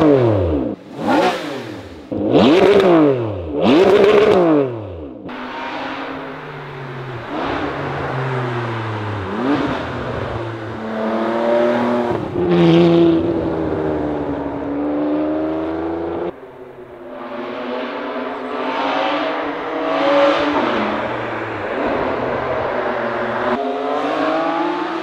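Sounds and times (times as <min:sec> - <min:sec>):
sports car accelerating through gears: 0:00.0 - 0:16.4.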